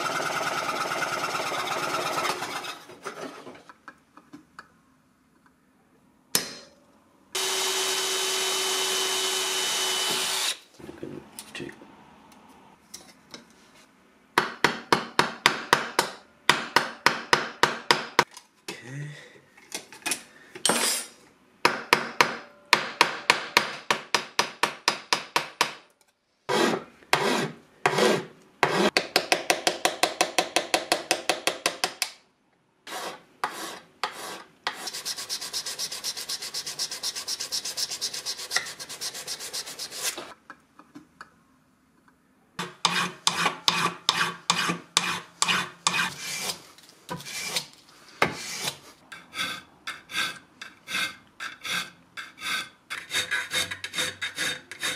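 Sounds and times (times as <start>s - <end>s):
hand file rasping on brass: 42.6s - 46.6s, 48.3s - 54.9s.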